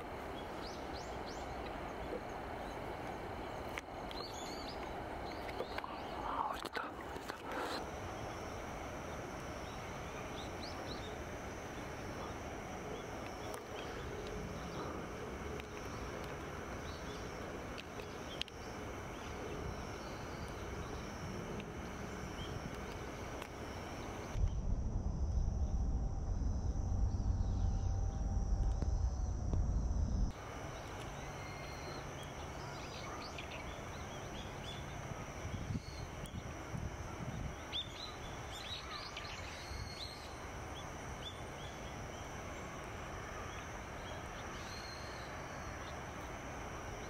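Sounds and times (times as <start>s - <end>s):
steady high-pitched hum: 0.0s - 47.0s
loud low rumble: 24.3s - 30.3s.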